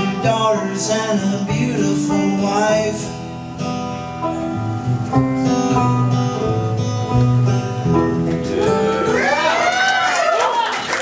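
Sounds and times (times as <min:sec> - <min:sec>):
acoustic guitar strumming: 0:00.0 - 0:09.2
banjo picking: 0:03.6 - 0:09.2.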